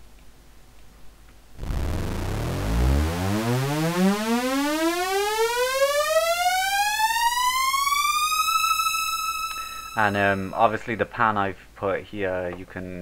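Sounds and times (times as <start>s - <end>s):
synth note rising in pitch: 1.6s - 8.3s.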